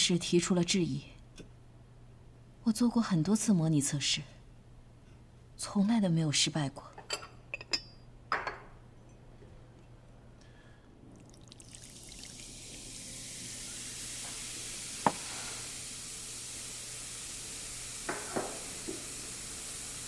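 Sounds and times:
cola fizzing and foaming: 11.0s - 20.0s.

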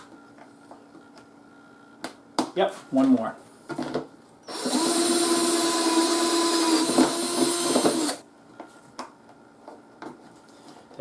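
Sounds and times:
power drill drilling: 4.5s - 8.2s.

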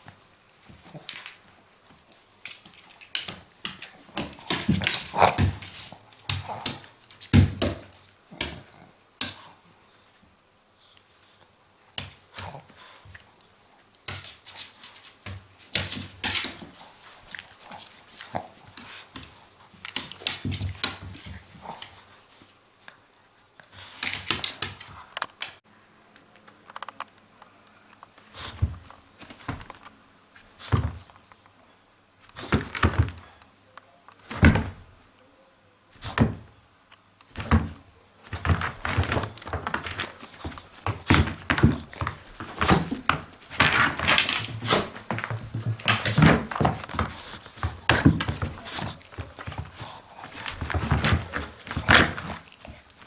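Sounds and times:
dog paws bumping on hard floor: 0.0s - 9.4s, 14.0s - 22.5s, 23.8s - 25.6s, 28.2s - 31.2s, 32.3s - 33.4s, 34.2s - 34.9s, 36.0s - 36.6s, 37.3s - 53.0s.

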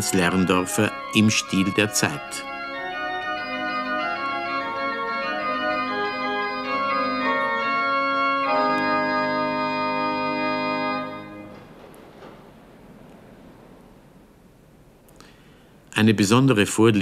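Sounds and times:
pipe organ playing: 0.0s - 11.9s.

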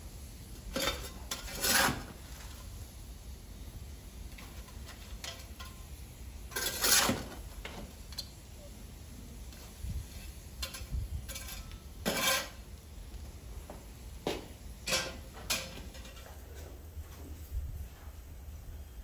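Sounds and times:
shovel scraping embers: 0.1s - 3.0s, 4.2s - 8.4s, 9.4s - 13.2s, 14.4s - 16.4s.

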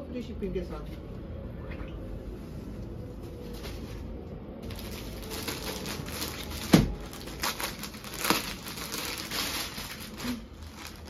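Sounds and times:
fabric and plastic rustling: 2.4s - 11.0s.

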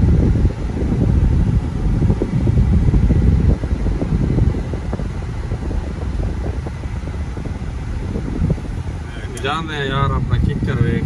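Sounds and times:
car cabin road rumble: 0.0s - 11.0s.

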